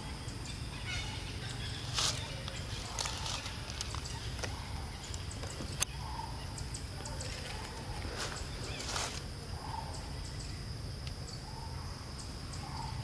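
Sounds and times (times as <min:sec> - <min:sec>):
faint animal calls: 0:00.0 - 0:10.4
steady high hum: 0:00.0 - 0:13.0.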